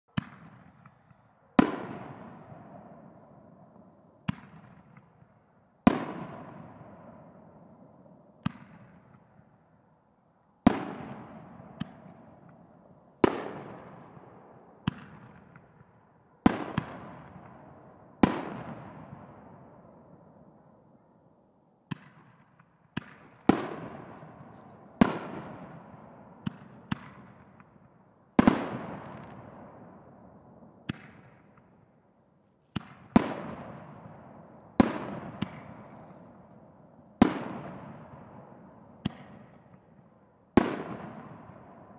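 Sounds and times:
fireworks exploding: 0.2 - 3.1, 5.9 - 7.4, 10.6 - 19.9, 21.9 - 30.0, 32.7 - 40.0, 40.6 - 41.9.

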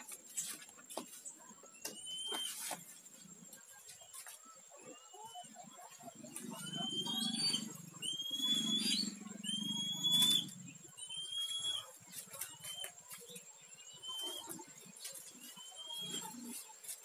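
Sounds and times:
bird whistling rising notes: 6.5 - 11.9.

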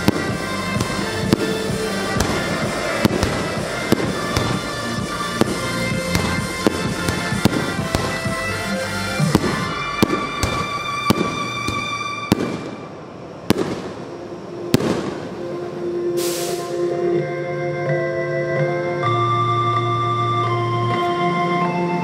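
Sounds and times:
music playing: 0.0 - 13.0, 14.0 - 22.0
fireworks bursting: 0.0 - 15.5.

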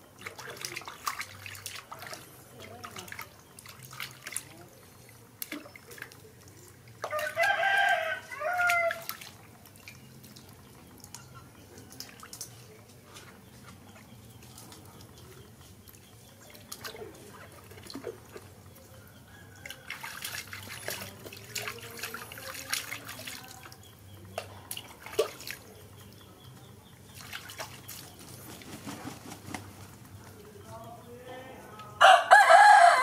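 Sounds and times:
bath water splashing: 0.0 - 11.2, 19.5 - 26.2, 27.0 - 29.7.

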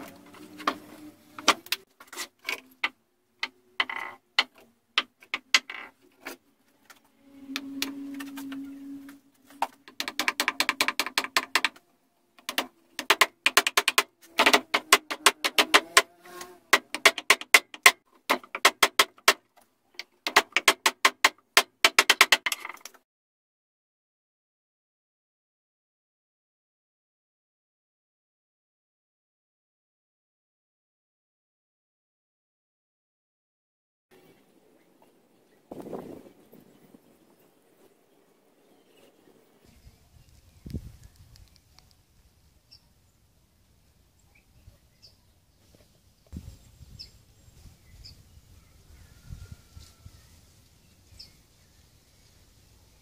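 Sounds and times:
hammer tapping metal spikes: 9.6 - 11.8, 12.4 - 19.4.

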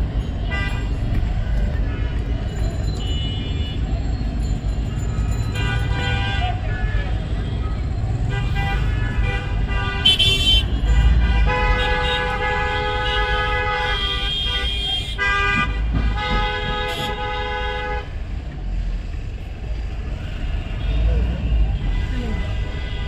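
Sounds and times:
road traffic rumble: 0.0 - 23.0
vehicle horns blasting: 5.5 - 7.6, 8.2 - 18.3, 20.3 - 23.0.

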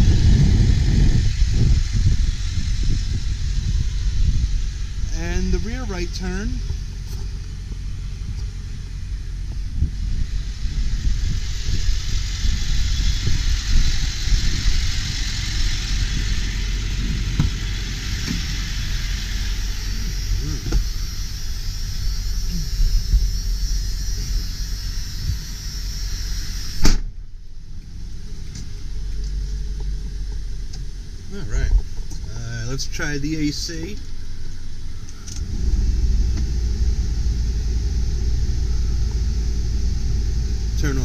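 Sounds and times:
diesel engine idling: 0.0 - 41.0
hiss: 0.0 - 41.0
low thumps: 6.6 - 24.4
sharp slam: 26.6 - 27.2.

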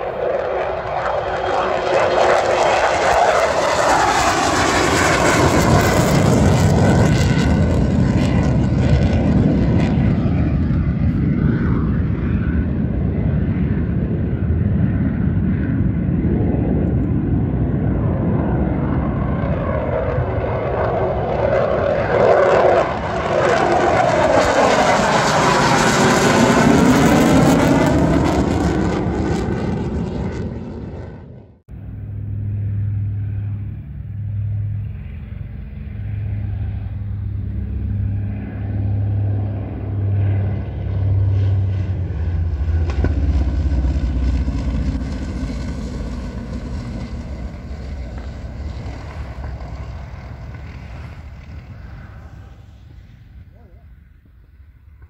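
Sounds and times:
jet passing overhead: 0.0 - 55.0
propeller plane engines droning: 0.0 - 55.0.

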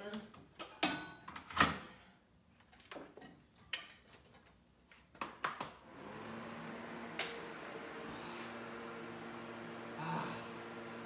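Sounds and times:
fan running with steady hum: 5.8 - 11.0.

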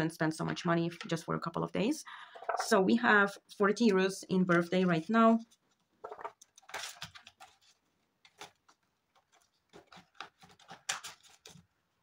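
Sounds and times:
plastic pouch rustling and clicking: 5.4 - 11.8.

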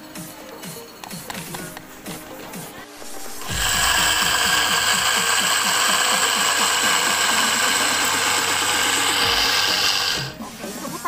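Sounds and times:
blender motor whine: 3.2 - 10.4
nuts churning in blender jar: 3.4 - 10.4.

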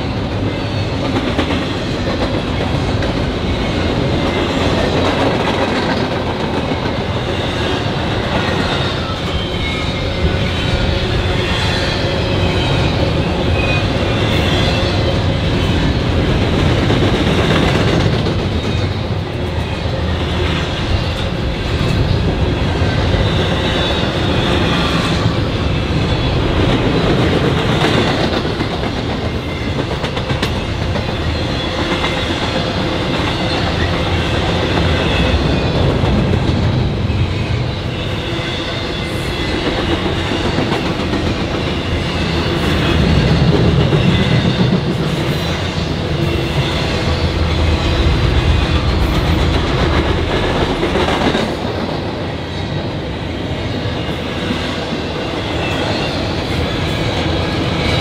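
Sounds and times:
freight train wheels rumbling on rails: 0.0 - 58.0.

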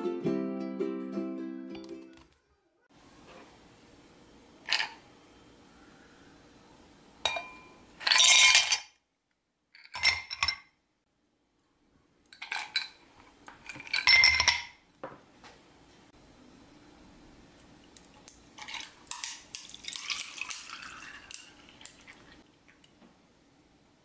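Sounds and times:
ice cubes clinking into glasses: 8.0 - 8.9, 13.7 - 14.7, 18.6 - 22.2.

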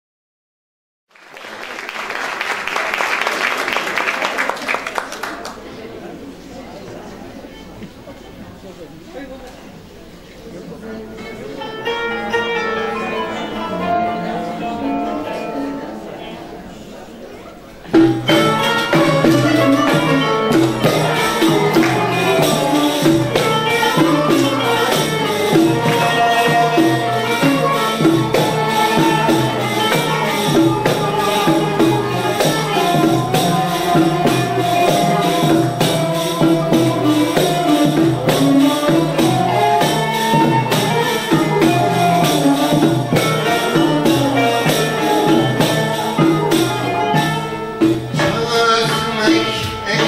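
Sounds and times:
stringed instruments melody: 10.6 - 50.0
hand drum percussion: 17.8 - 50.0.

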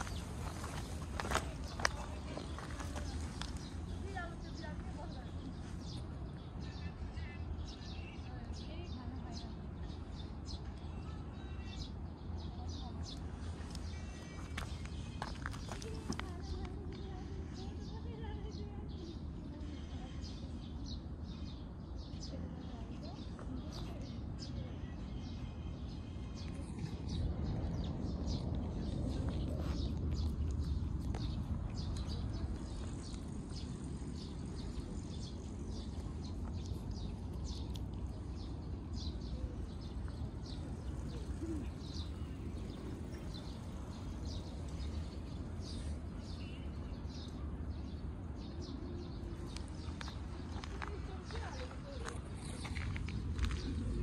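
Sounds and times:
small birds chirping: 0.0 - 54.0
low microphone rumble: 24.1 - 46.2.

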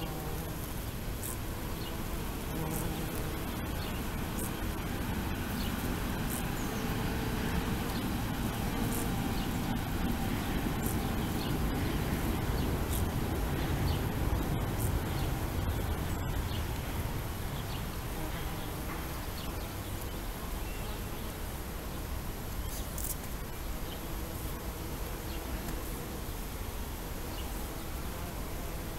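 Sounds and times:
bumblebees buzzing: 0.0 - 28.9
low background rumble: 3.3 - 19.0.

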